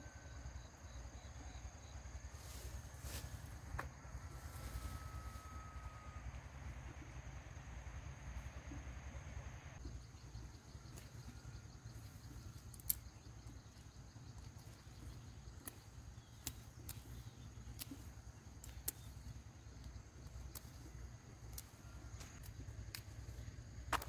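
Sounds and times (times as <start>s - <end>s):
high insect drone: 0.0s - 24.0s
sharp clicks: 15.3s - 20.9s.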